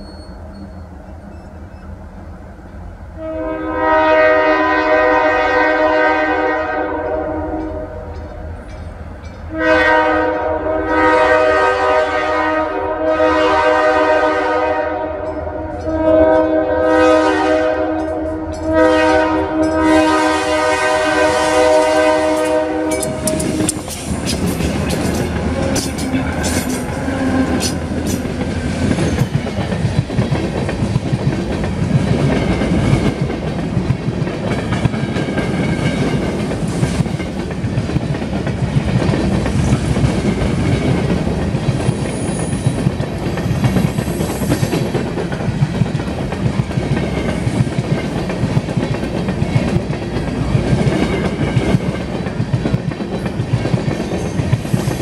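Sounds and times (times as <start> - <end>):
locomotive air horn chord: 3.2 - 8.1, 9.5 - 23.8
train wheels rumbling: 3.8 - 55.0
clickety-clack over rail joints: 22.4 - 55.0.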